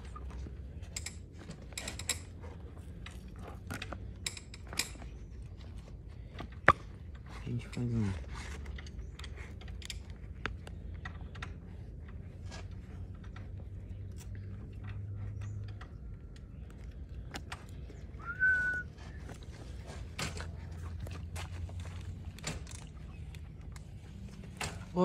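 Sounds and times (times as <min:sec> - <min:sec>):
short rising whistle: 0:18.2 - 0:18.9.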